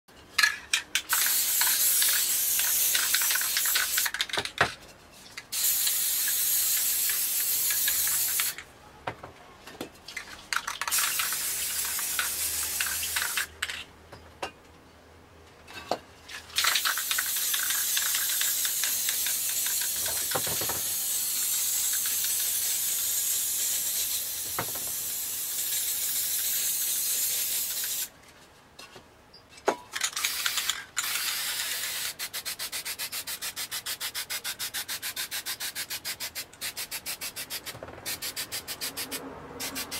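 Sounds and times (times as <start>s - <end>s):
spray paint can hissing: 0.4s - 4.6s, 5.5s - 8.6s, 10.5s - 13.7s, 16.6s - 28.1s, 30.0s - 39.9s.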